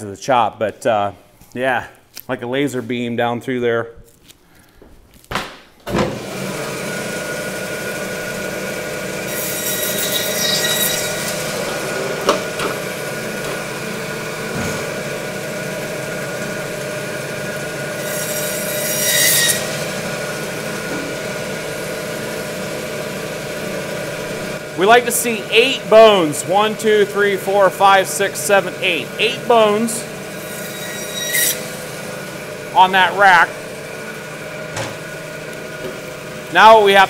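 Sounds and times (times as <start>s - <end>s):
band saw humming: 5.9s - 37.0s
saw blade cutting bone: 18.0s - 19.9s, 30.4s - 31.8s.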